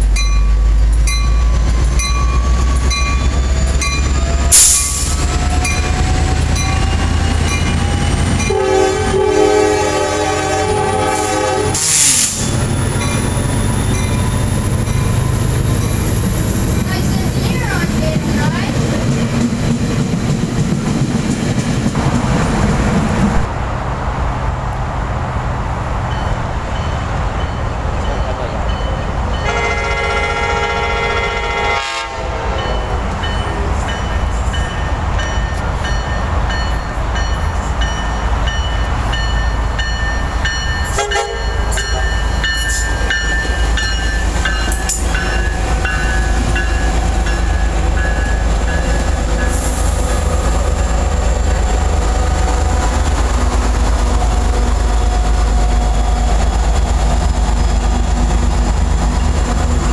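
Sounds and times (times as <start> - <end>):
train horn blast: 8.4 - 12.5, 29.4 - 32.9, 40.9 - 41.6
train wheels clacking over rails: 10.4 - 23.5, 32.7 - 59.9.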